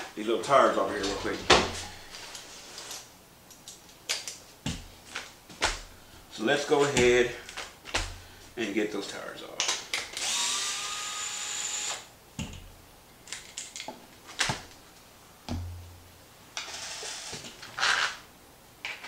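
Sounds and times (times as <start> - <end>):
cordless screwdriver whirring: 10.2 - 12.1.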